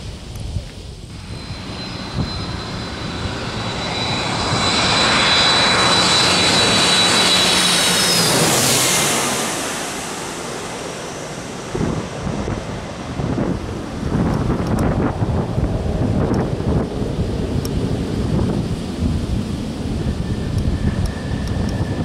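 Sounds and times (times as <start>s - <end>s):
wind buffeting microphone: 0.0s - 7.0s, 11.6s - 22.0s
high fan whine: 0.0s - 22.0s
jet airliner passing overhead: 0.0s - 22.0s.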